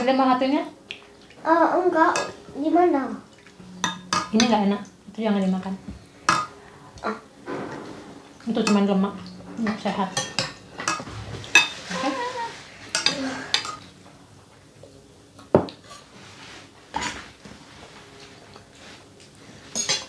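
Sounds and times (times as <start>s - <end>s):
cutlery clinking against plates: 3.6s - 4.6s, 6.3s - 6.6s, 8.6s - 12.1s, 12.9s - 13.9s, 16.9s - 17.3s, 18.5s - 20.0s.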